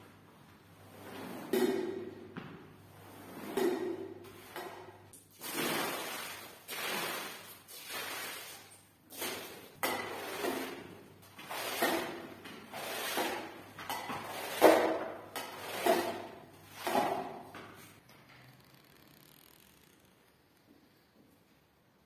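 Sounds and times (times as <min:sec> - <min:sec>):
squeegee scraping a soaked rug: 0:03.0 - 0:03.6, 0:05.5 - 0:17.9.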